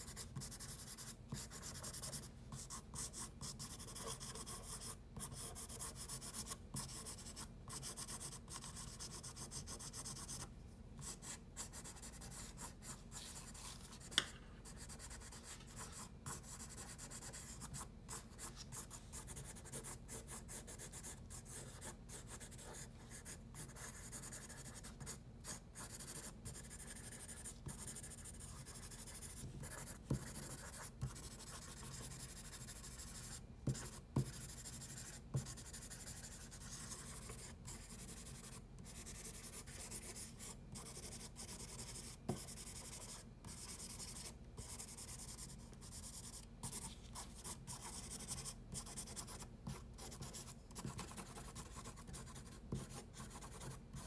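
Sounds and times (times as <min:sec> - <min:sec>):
pencil scratching on paper: 0:00.0 - 0:54.0
light pencil taps: 0:14.0 - 0:14.4.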